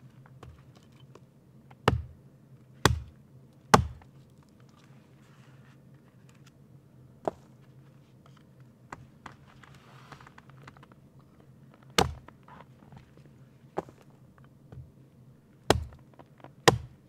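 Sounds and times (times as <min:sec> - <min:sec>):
hatchet chopping wood: 0:01.8 - 0:02.2, 0:02.8 - 0:04.1, 0:12.0 - 0:12.3, 0:15.7 - 0:16.0, 0:16.6 - 0:17.0.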